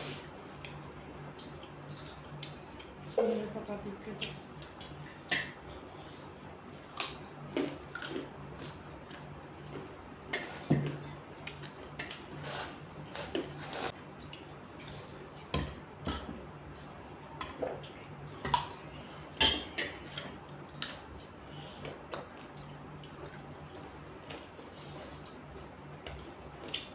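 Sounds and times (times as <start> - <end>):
chewing: 4.2 - 15.5.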